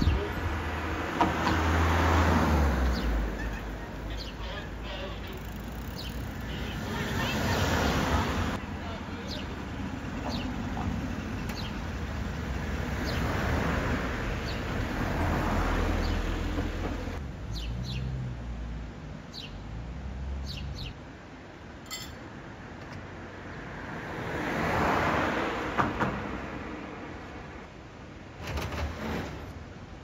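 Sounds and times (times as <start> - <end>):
cars passing on road: 0.0 - 28.4
small birds chirping: 2.8 - 8.0, 8.8 - 12.0, 17.5 - 18.1, 19.3 - 19.6, 20.4 - 21.0.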